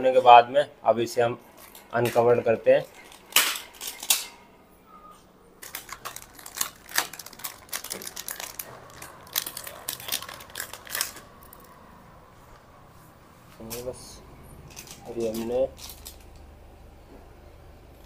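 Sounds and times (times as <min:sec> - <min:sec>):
plastic bag crinkling: 0:05.6 - 0:11.8, 0:14.6 - 0:16.5.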